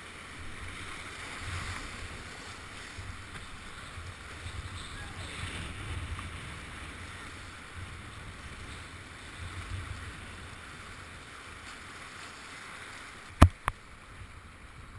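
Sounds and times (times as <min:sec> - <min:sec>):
wind buffeting microphone: 0:01.2 - 0:11.3.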